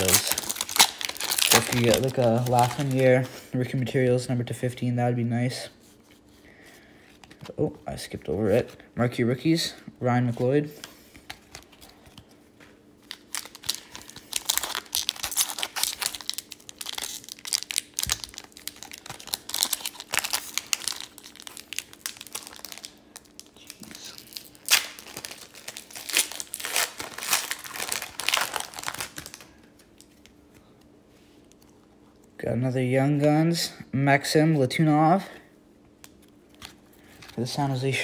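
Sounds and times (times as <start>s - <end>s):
card pack wrapper tearing crinkling: 0.0s - 3.2s, 13.0s - 30.3s.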